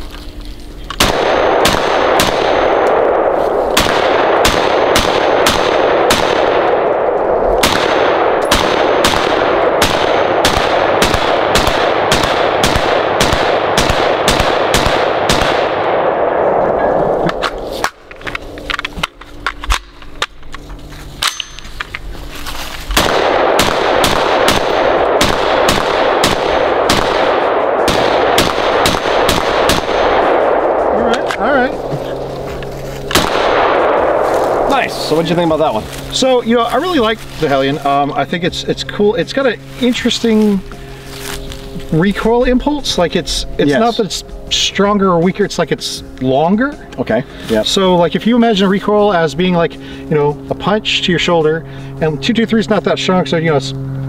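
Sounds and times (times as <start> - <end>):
rifle firing rapid shots: 1.0 - 16.5, 23.0 - 31.0, 33.1 - 35.4.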